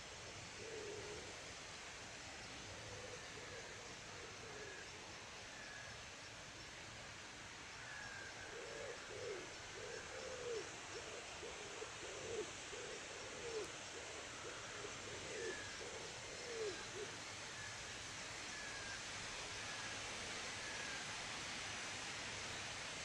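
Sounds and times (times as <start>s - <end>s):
bird hooting calls: 7.9s - 17.6s.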